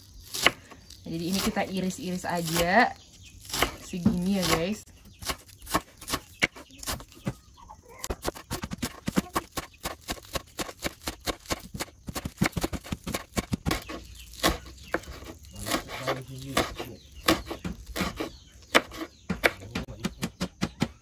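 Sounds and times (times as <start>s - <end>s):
knife chopping on wooden board: 3.4s - 7.4s, 8.1s - 21.0s.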